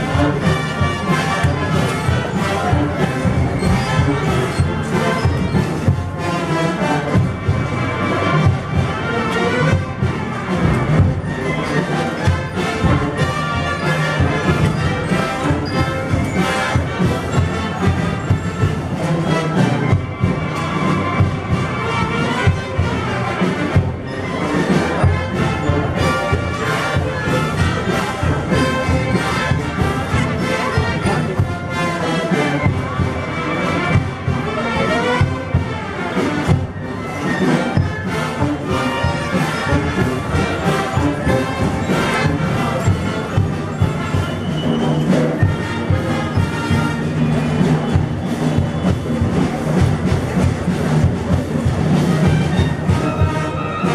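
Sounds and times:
wind band playing a march: 0.0 - 53.9
drum beat: 21.2 - 32.0, 32.6 - 53.6.

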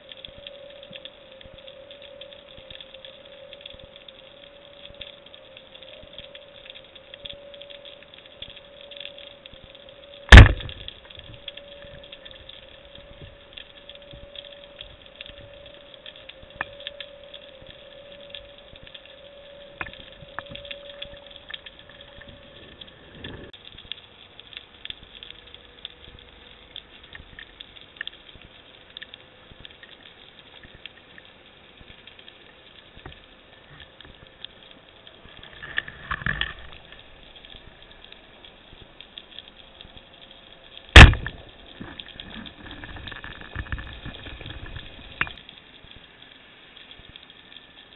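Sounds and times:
steady underwater tone: 0.0 - 47.9
underwater crackle of clicks: 0.0 - 47.9
loud sharp crack: 10.3 - 10.8, 41.0 - 41.4.

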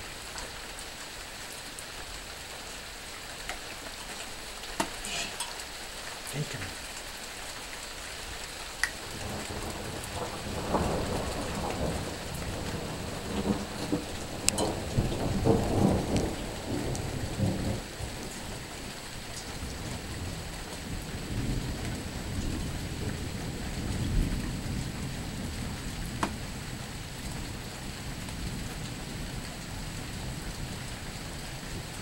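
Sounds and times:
rain hiss: 0.0 - 32.0
thunder rumbling: 9.0 - 18.7, 19.5 - 32.0.

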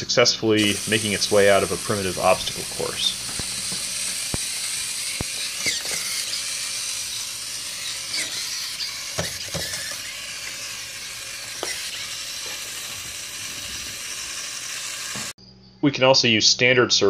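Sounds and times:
steady high hiss: 0.6 - 5.4
servos whirring: 0.6 - 15.4.

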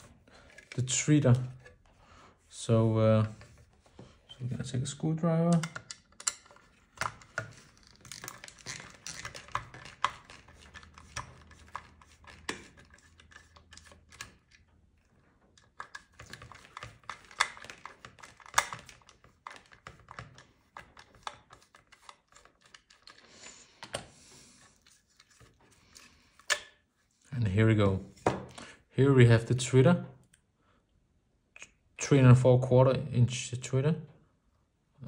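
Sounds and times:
screwdriver clicks and taps: 5.5 - 7.5.

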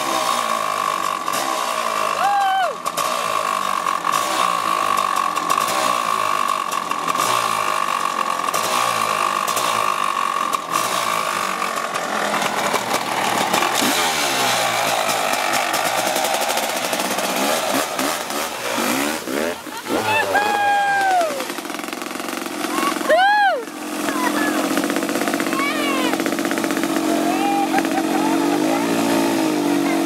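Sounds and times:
dirt bike engine revving: 0.0 - 30.0.

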